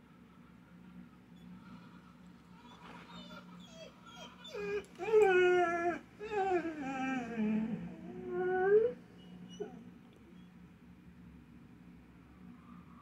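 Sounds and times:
dog howling: 0:02.7 - 0:09.9
dog whimpering: 0:02.7 - 0:10.4.

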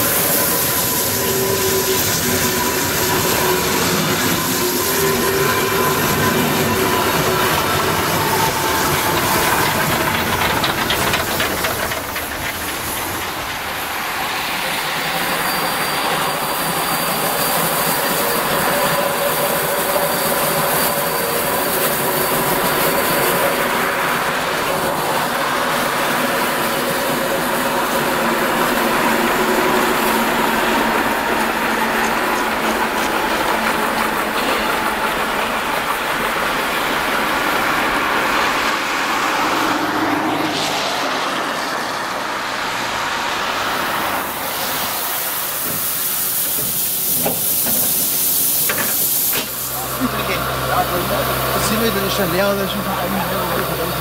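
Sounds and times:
train wheels squealing: 0:00.0 - 0:36.4
train wheels clattering: 0:00.0 - 0:38.4, 0:44.1 - 0:54.0
steam hissing: 0:00.0 - 0:54.0.

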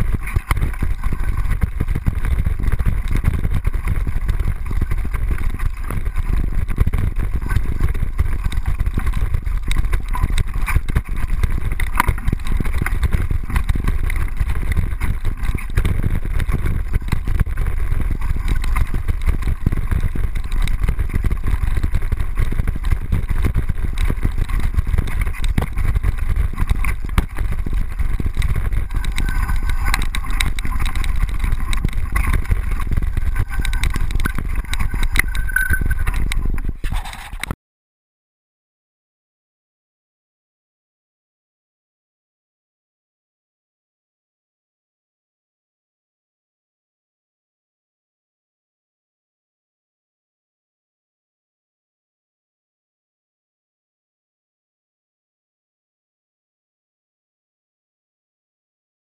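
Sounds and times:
mountain bike rumble: 0:00.0 - 0:37.6
camera housing rattling: 0:26.8 - 0:37.5.

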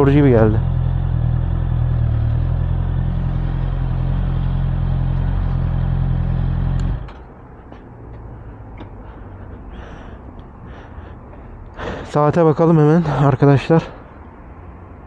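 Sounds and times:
motorcycle engine idling: 0:00.0 - 0:07.3.

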